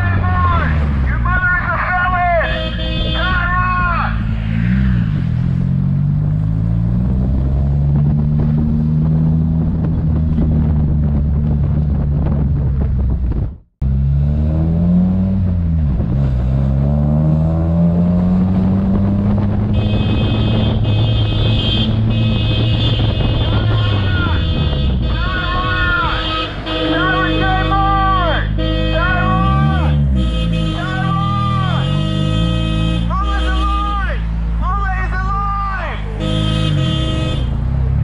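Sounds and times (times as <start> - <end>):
car engine and road noise: 0.0 - 38.0.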